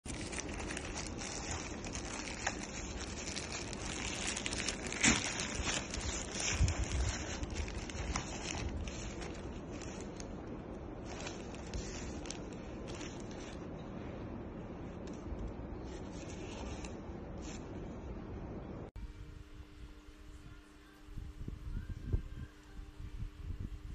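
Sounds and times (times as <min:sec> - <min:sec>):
plastic bag crinkling: 0:00.0 - 0:13.7.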